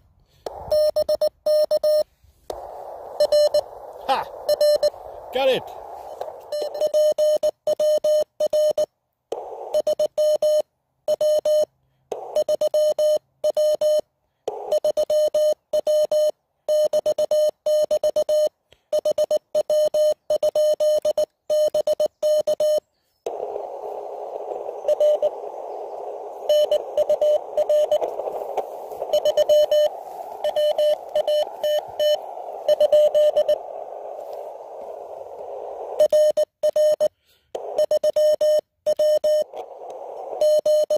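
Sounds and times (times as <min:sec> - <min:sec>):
radio band noise hiss: 0:00.0 - 0:01.0, 0:02.3 - 0:07.4, 0:09.3 - 0:10.1, 0:23.3 - 0:36.4, 0:37.3 - 0:38.4, 0:39.0 - 0:40.9
morse code tone: 0:00.5 - 0:02.0, 0:02.6 - 0:05.7, 0:06.4 - 0:08.9, 0:24.2 - 0:39.6.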